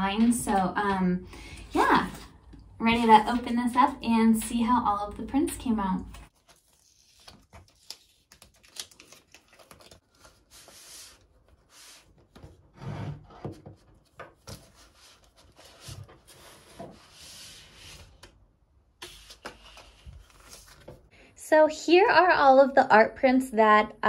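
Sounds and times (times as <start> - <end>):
cardboard rubbing and scraping: 10.3 - 18.2.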